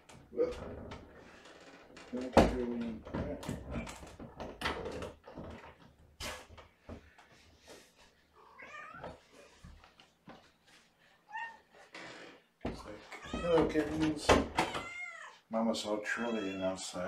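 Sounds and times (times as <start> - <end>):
cat trilling and meowing: 8.4 - 9.2, 13.1 - 13.6, 14.6 - 15.4.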